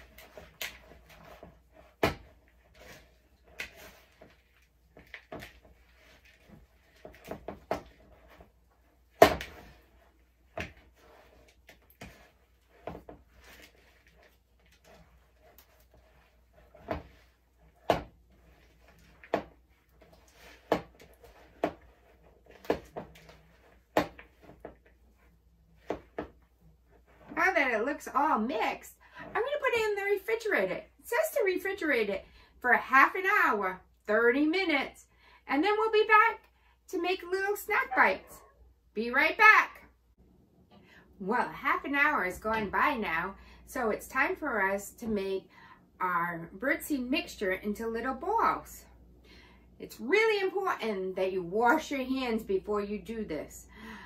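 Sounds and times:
utensil stirring sticky mix: 0.0s - 27.4s.

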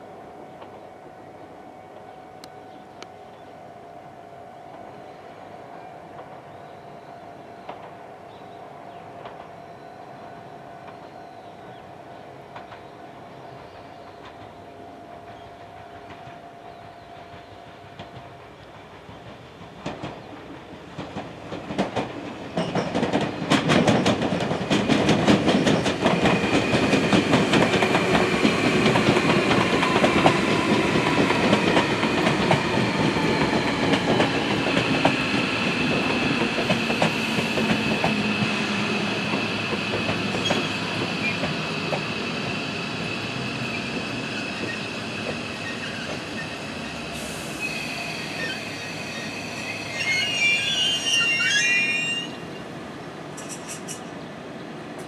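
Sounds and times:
train wheels clattering over rail joints: 17.3s - 42.2s
train high-pitched whine: 25.6s - 52.8s.

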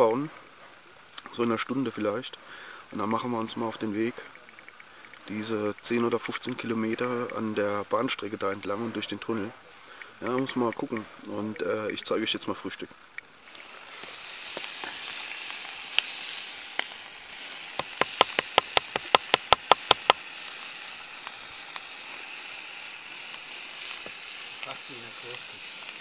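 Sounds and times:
food sizzling: 1.1s - 26.0s
sharp clicks: 4.2s - 7.5s, 9.9s - 12.4s.

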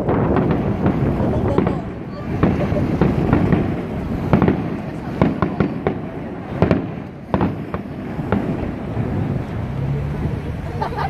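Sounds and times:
fireworks bangs: 0.0s - 10.7s.

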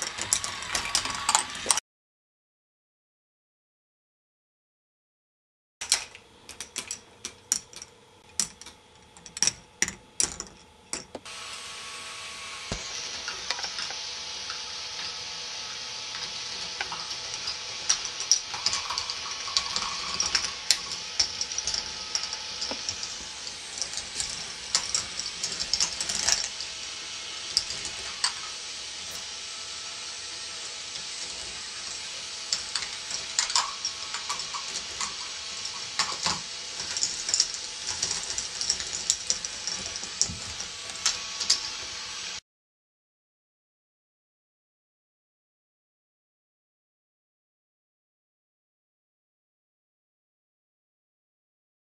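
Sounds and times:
balls clicking and clattering on track: 0.0s - 1.8s, 5.8s - 11.3s, 16.1s - 28.7s, 30.3s - 42.1s
steady high hiss: 11.3s - 42.4s.

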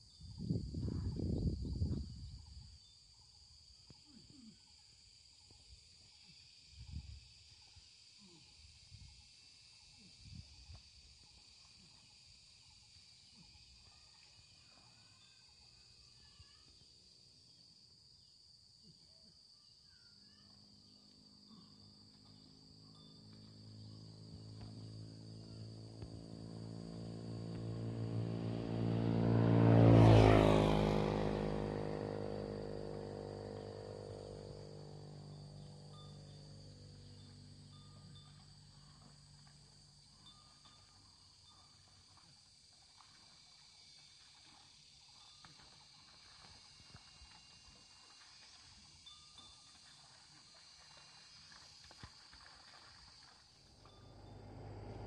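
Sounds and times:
high-pitched insect buzz: 20.0s - 40.1s
vehicle engine passing by: 21.1s - 40.2s, 53.6s - 55.0s.

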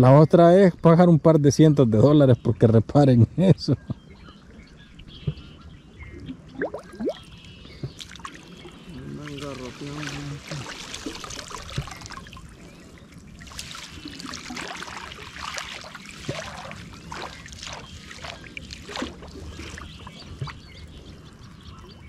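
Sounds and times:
water dripping and splashing: 6.2s - 21.9s.

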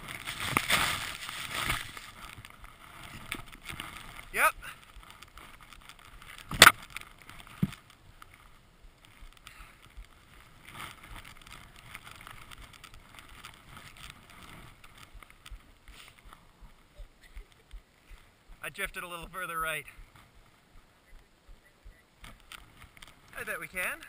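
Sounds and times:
skis hissing through powder snow: 0.0s - 2.2s, 15.9s - 16.2s.

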